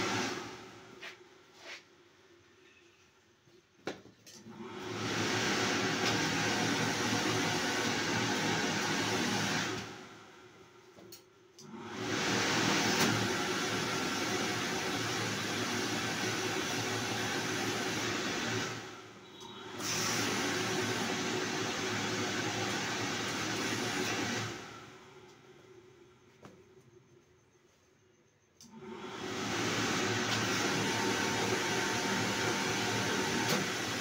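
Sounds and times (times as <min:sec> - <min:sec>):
vacuum blower motor whooshing: 0:00.0 - 0:01.0, 0:04.4 - 0:10.3, 0:11.6 - 0:25.1, 0:28.6 - 0:34.0.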